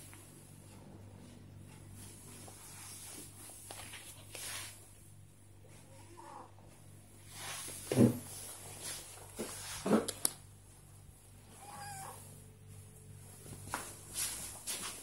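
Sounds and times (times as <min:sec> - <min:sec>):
cat meowing roughly: 0:11.6 - 0:12.2.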